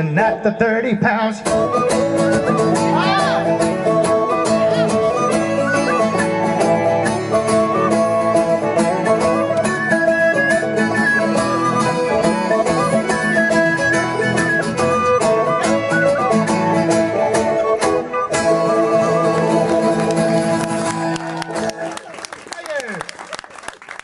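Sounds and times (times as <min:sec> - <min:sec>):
lively folk melody: 0:00.0 - 0:22.4
strummed acoustic guitar: 0:01.3 - 0:21.1.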